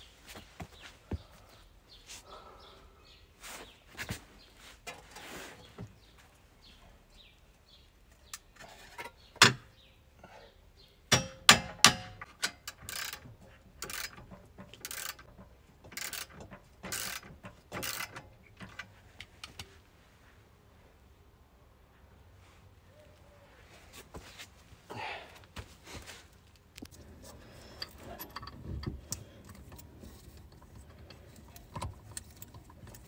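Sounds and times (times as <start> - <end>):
sharp metal clanks: 11.1 - 12.8
ratchet wrench strokes: 12.7 - 13.2, 13.8 - 14.2, 14.8 - 15.3, 16.0 - 18.1.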